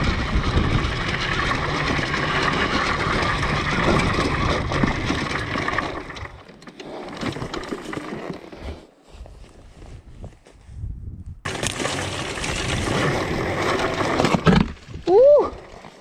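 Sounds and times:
dirt bike engine running: 0.0s - 8.5s, 11.5s - 14.8s
clicks and crunches: 11.5s - 15.0s.

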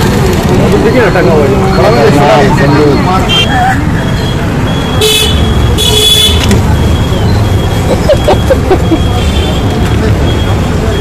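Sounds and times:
traffic rumble: 0.0s - 11.0s
car horn toots: 5.0s - 6.6s.

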